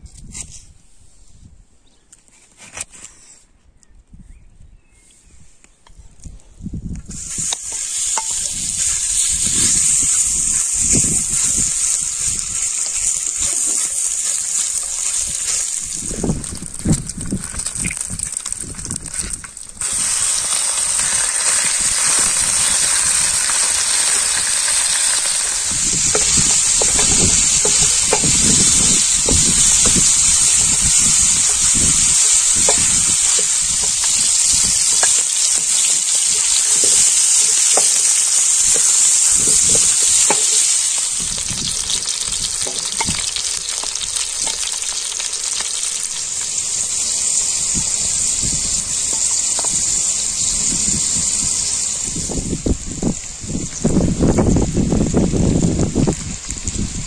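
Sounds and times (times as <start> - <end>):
meat sizzling on a griddle: 7.1 - 57.0
wooden spoon scraping and knocking: 25.8 - 30.2.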